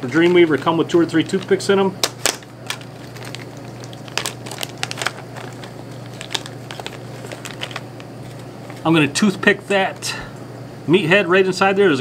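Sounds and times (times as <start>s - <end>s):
plastic bag crinkling: 0.0s - 9.2s
low steady hum: 0.0s - 12.0s.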